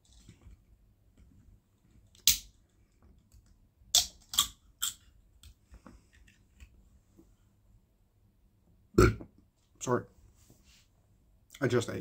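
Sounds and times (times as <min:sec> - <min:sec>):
soda can cracking open: 0:02.2 - 0:02.5, 0:03.9 - 0:05.0.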